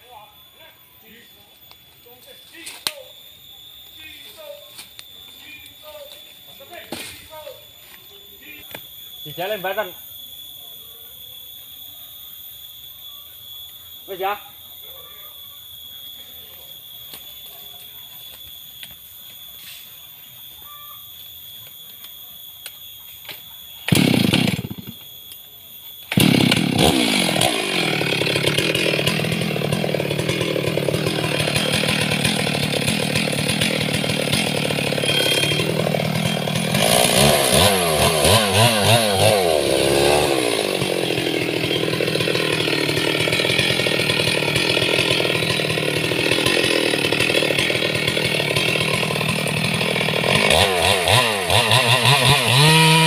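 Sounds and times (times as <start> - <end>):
chainsaw starting and revving: 23.9 - 25.0, 26.1 - 53.0.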